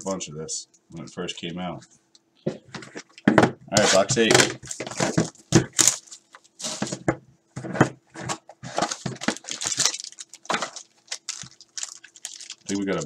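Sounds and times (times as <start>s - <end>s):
plastic shrink wrap crinkling: 3.8s - 7.0s, 8.2s - 13.0s.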